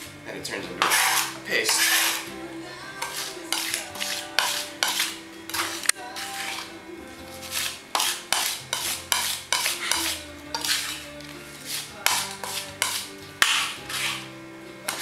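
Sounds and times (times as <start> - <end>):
faint background music: 0.0 - 15.0
knife mashing garlic on wooden board: 3.0 - 6.6, 7.5 - 11.0, 11.7 - 14.2.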